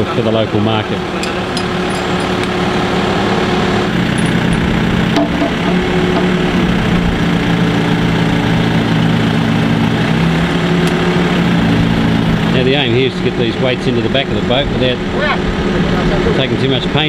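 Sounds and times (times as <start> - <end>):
truck engine running: 0.3 - 16.5
faint chain clinks: 1.2 - 2.7, 4.1 - 4.9.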